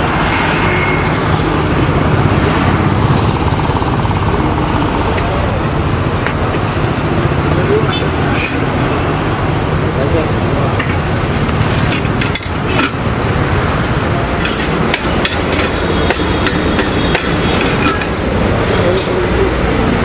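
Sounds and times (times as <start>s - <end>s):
street traffic hum: 0.0s - 20.0s
metal utensils clinking on pots: 11.8s - 13.0s, 14.4s - 18.2s, 18.8s - 19.3s.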